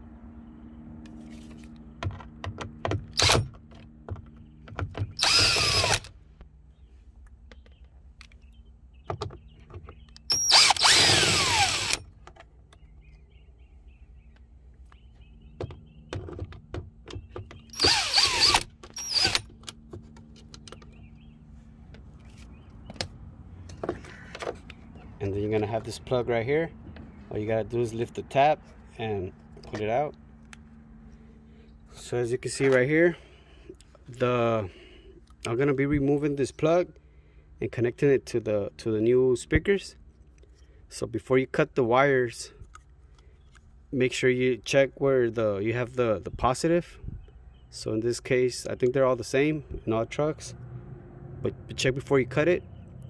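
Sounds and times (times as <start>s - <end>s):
power drill-driver spinning: 3.2s - 3.4s, 5.2s - 6.1s, 10.2s - 12.1s, 17.7s - 19.6s.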